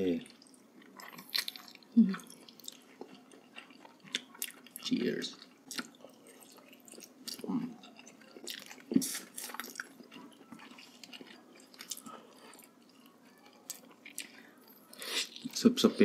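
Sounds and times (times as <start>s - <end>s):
people chewing and biting: 0.1s - 16.0s.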